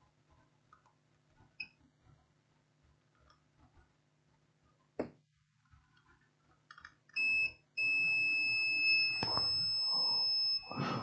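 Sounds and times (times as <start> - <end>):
multimeter beeping: 7.1 - 11.0.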